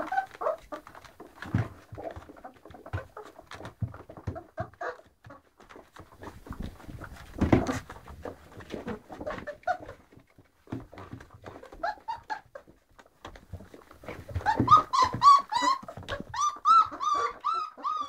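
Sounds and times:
puppies squeaking: 0:00.0 - 0:05.1, 0:11.5 - 0:12.6, 0:13.6 - 0:18.0
rustling and scuffling: 0:00.0 - 0:17.5.

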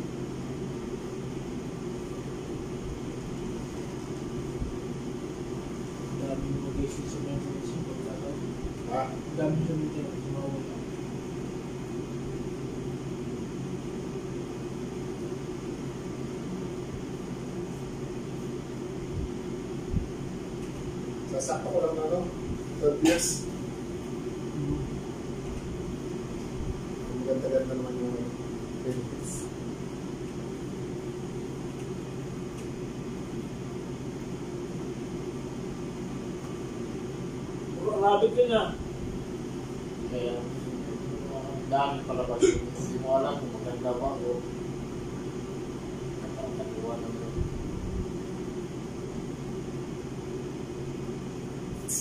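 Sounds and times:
mechanical hum with hiss: 0:00.0 - 0:52.0.

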